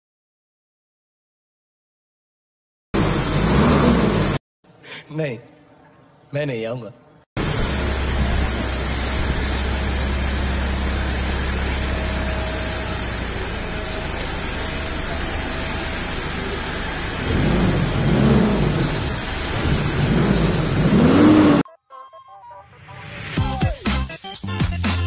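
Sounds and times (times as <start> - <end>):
vehicle engine rushing noise: 3.0 - 4.4, 7.4 - 21.6.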